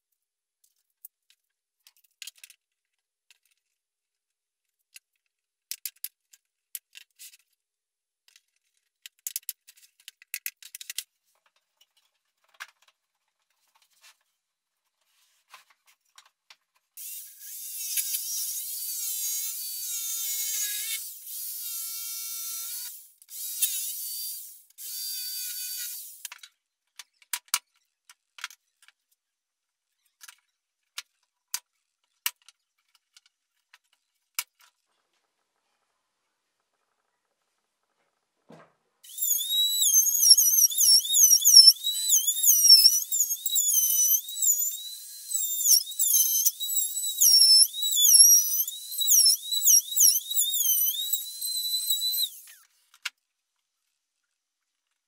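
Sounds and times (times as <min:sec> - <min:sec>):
jigsaw cutting board: 0:39.1 - 0:52.7.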